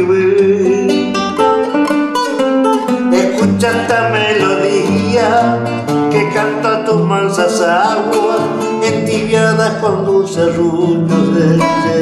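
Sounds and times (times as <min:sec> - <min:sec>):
fingerstyle classical guitar: 0:00.0 - 0:12.0.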